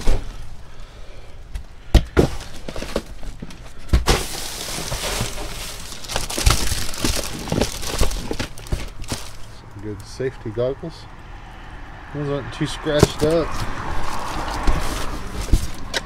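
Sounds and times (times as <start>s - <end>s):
plastic bags and papers rustling: 0.0s - 0.5s, 2.2s - 10.1s, 12.9s - 16.0s.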